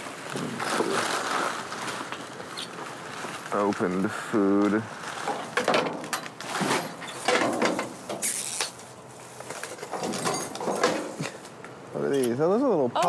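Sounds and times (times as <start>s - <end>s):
objects rustling and knocking: 0.0s - 12.3s.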